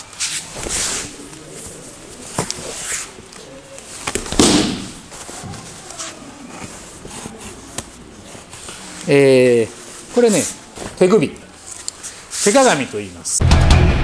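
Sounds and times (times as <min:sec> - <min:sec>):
body thudding onto mat: 0:04.0 - 0:05.2
short sharp impact: 0:04.3 - 0:05.0.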